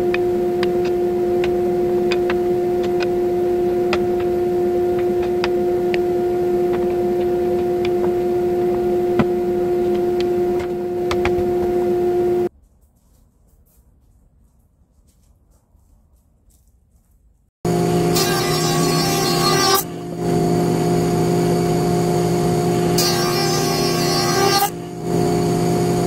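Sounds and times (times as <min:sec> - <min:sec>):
machine motor humming: 0:00.0 - 0:12.5, 0:17.7 - 0:23.8.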